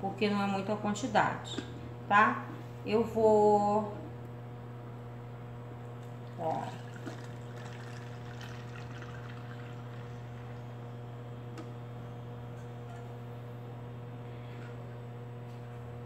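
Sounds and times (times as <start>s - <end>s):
electrical hum: 0.0s - 16.0s
liquid pouring into jar: 6.4s - 10.6s.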